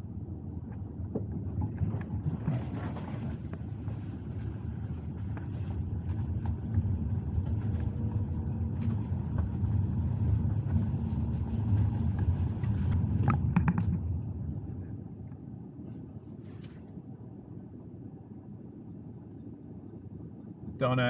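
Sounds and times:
car cabin rumble: 0.0s - 16.9s
tyre noise on wet road: 2.6s - 14.2s.

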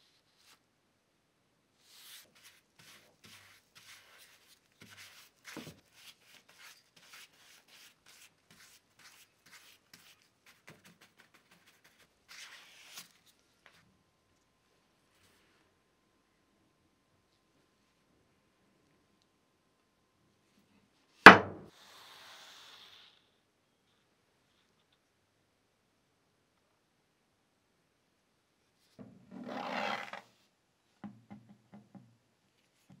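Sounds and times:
hand tool scraping a workpiece: 29.3s - 30.2s.

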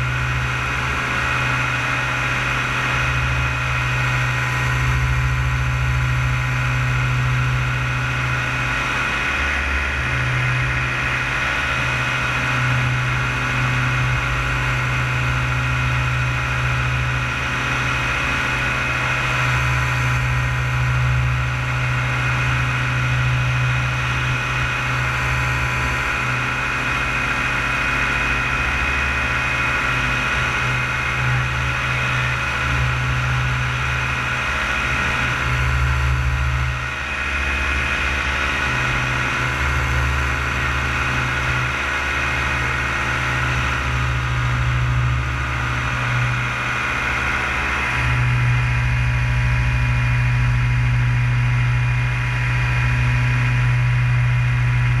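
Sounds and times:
paramotor engine droning: 0.0s - 55.0s.

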